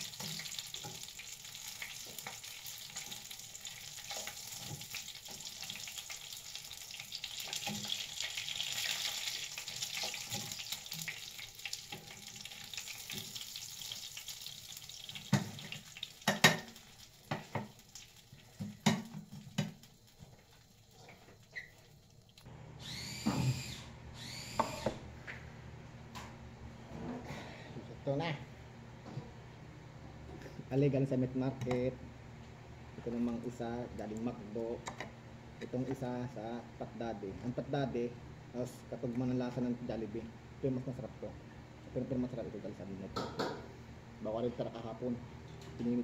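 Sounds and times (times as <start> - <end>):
oil sizzling in a frying pan: 0.0 - 22.5.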